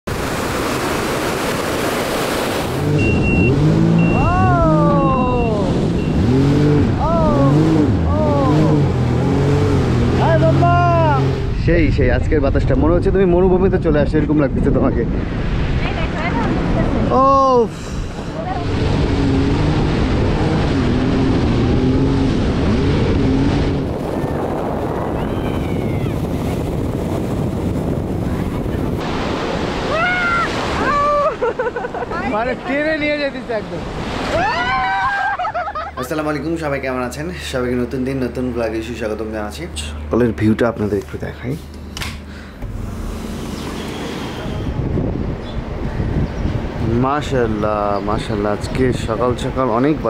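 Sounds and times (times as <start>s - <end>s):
wind: 0.0s - 50.0s
surf: 0.1s - 13.7s, 14.3s - 41.7s
jet ski engine revving: 0.2s - 11.6s, 16.3s - 31.2s, 33.4s - 48.1s
high beep: 3.0s - 6.4s.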